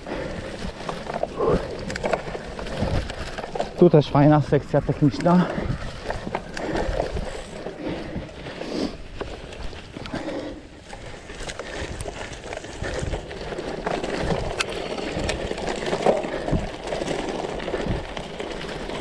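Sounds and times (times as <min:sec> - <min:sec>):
bike rattles and knocks: 0:00.0 - 0:19.0
bike tyres rumbling on rough ground: 0:00.0 - 0:19.0.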